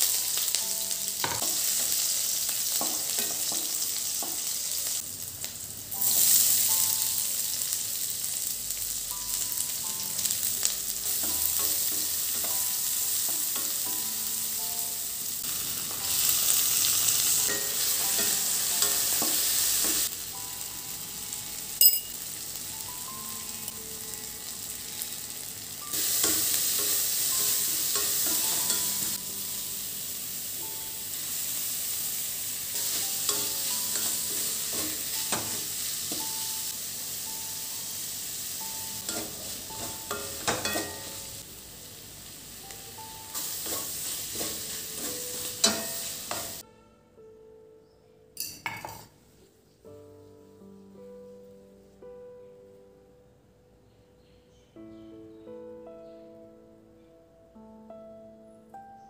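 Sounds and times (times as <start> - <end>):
vegetables sizzling in hot oil: 0.0 - 46.6.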